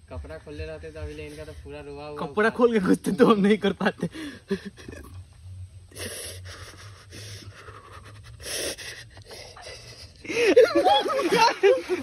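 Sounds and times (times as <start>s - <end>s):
man panting heavily: 6.0s - 10.6s.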